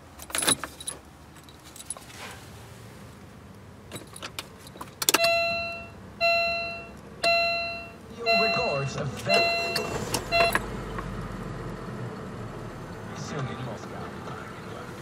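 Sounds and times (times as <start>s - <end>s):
car keys jangling: 0.0s - 2.3s, 3.9s - 5.9s
dashboard warning chime: 5.1s - 10.7s.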